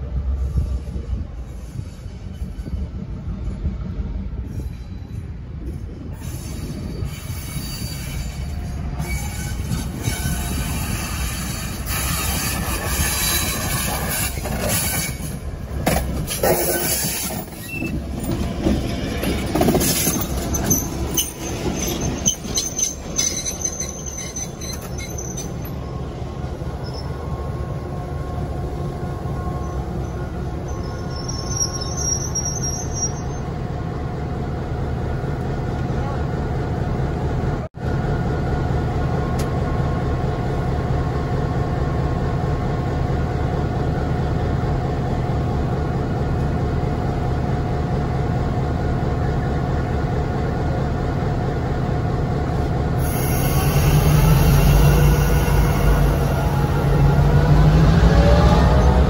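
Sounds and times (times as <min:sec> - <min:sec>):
wheels squealing on rails: 0:00.1 - 0:33.6, 0:53.0 - 0:59.0
train wheels clicking over rail joints: 0:06.5 - 0:25.8.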